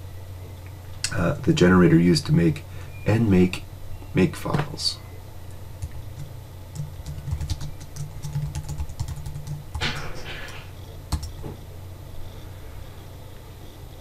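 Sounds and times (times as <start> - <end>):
faint low hum: 0.0 - 14.0
keyboard typing: 5.8 - 11.4.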